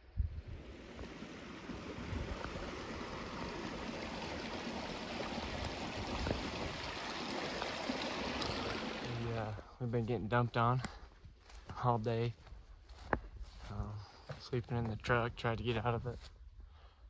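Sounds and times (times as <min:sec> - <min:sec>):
stream rushing over rocks: 0:00.4 - 0:09.4.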